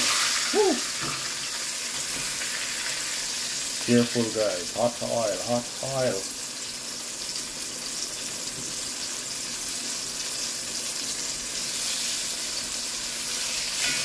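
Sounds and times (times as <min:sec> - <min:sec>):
fish sizzling in hot oil: 0:00.0 - 0:14.0.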